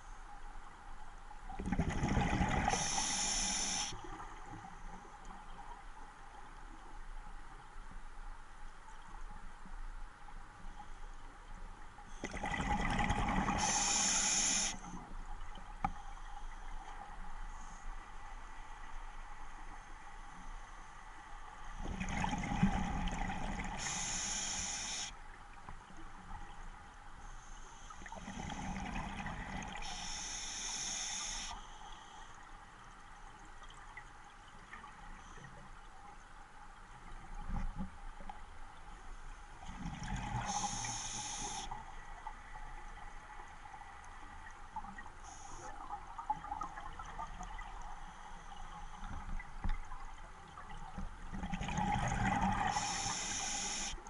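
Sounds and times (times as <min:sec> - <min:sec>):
regulator inhalation hiss: 0:02.7 - 0:04.0, 0:13.6 - 0:14.8, 0:23.8 - 0:25.1, 0:29.8 - 0:31.8, 0:40.4 - 0:41.8, 0:52.7 - 0:54.0
exhaled bubbles burbling: 0:51.3 - 0:52.8.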